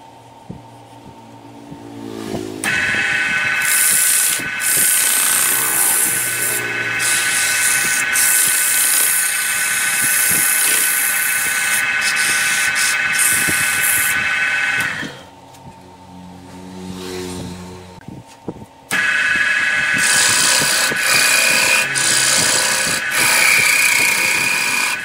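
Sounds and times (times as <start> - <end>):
lathe motor whine: 2.5 - 16.5, 18.9 - 25.0
sandpaper hissing against spinning wood: 2.8 - 15.2, 19.0 - 25.0.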